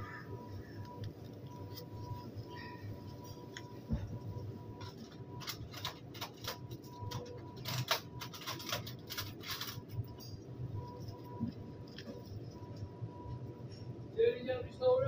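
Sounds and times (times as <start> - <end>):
faint high steady tone: 0.0 - 4.9
low kitchen hum: 0.0 - 15.0.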